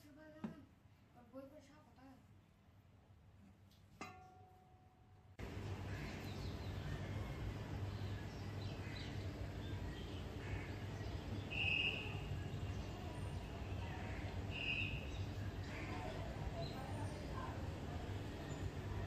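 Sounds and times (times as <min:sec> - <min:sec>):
birds chirping: 0:05.4 - 0:19.0
high bird calls: 0:05.8 - 0:12.6, 0:13.8 - 0:16.9.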